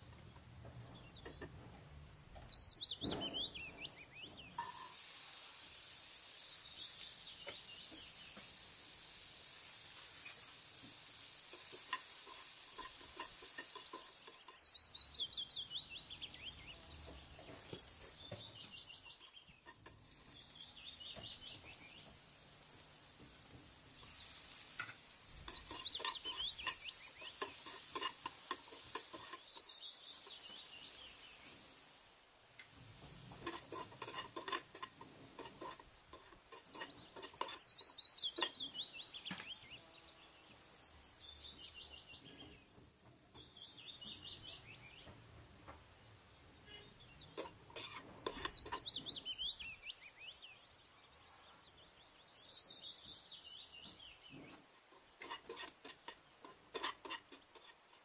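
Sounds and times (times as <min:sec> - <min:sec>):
chickpeas sizzling in oil: 0:02.0 - 0:58.0
spatula scraping a pan: 0:04.6 - 0:05.2, 0:10.1 - 0:31.8, 0:32.6 - 0:42.7, 0:46.7 - 0:49.2, 0:54.4 - 0:58.0.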